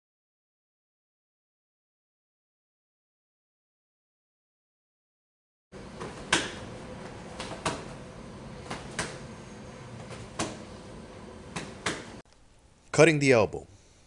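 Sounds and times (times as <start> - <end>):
low room hum: 5.8 - 14.0
boxing glove slapping open hand: 6.0 - 8.0, 8.6 - 9.3, 11.5 - 12.2.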